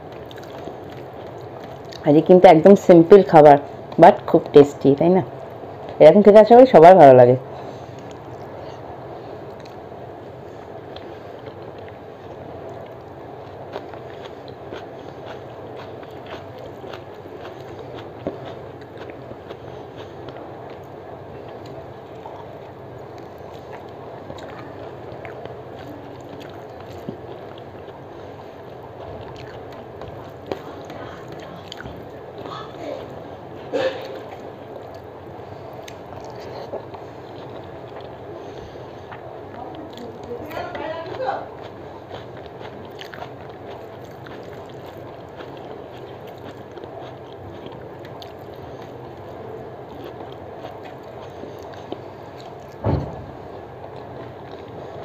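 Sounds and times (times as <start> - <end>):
chewing and mouth sounds: 0.0 - 2.1, 7.8 - 9.8, 10.6 - 52.8, 53.7 - 55.0
dull thump: 52.8 - 53.4.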